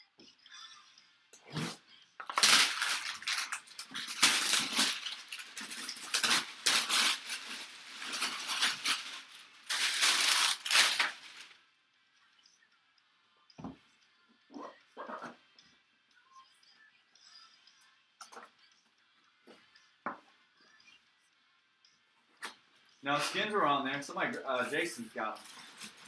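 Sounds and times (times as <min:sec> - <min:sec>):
plastic shrink wrap crinkling: 0:02.2 - 0:11.6, 0:24.8 - 0:26.0.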